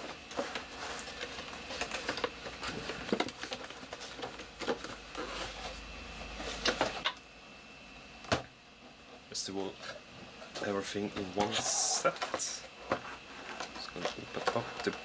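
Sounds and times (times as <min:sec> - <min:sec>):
cardboard box rustling and scraping: 0:00.0 - 0:07.0.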